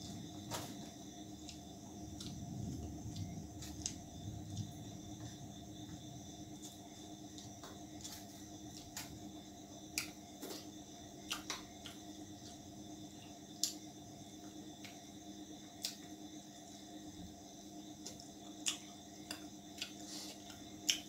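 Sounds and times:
faint steady hum: 0:00.0 - 0:21.0
chewing and wet smacks: 0:18.0 - 0:21.0.

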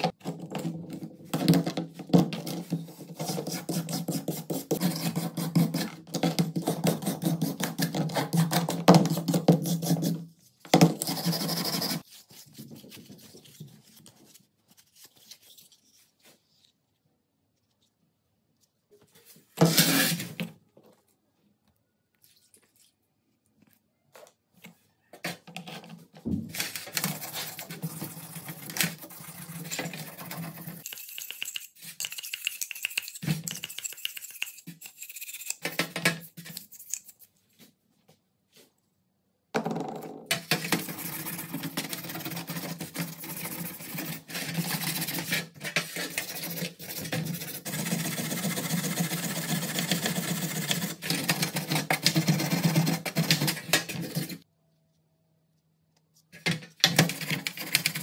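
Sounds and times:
brush scrubbing metal: 0:27.3 - 0:35.7.

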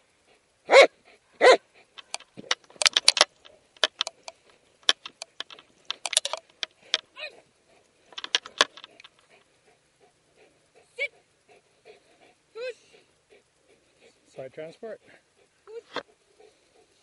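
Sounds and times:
metallic jingling and clicking: 0:01.9 - 0:09.4.

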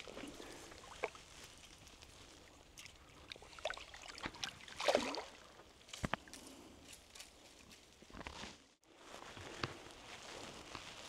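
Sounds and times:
creek water splashing and trickling: 0:00.0 - 0:06.4
louder water splash: 0:04.6 - 0:05.4.

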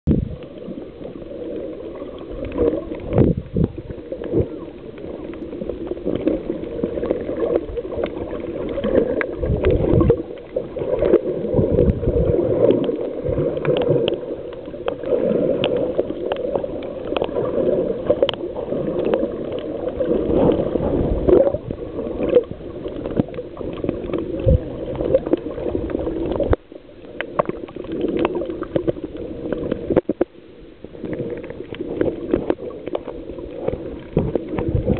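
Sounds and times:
water gurgling and bubbling: 0:00.1 - 0:34.9.

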